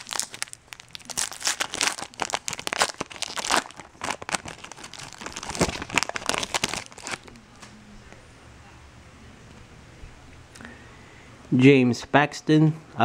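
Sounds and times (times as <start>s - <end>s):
foil pack crinkling and tearing: 0.0s - 7.4s.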